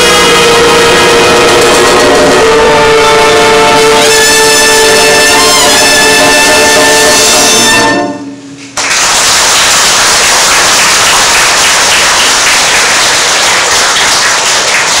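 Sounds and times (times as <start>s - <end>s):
wind band chord: 0.0s - 8.6s
audience applause: 8.8s - 15.0s.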